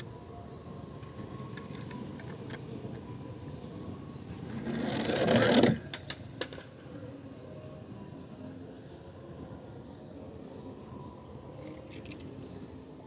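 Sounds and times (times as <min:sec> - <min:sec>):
toy wheels whirring on plastic slide: 0:04.5 - 0:06.6.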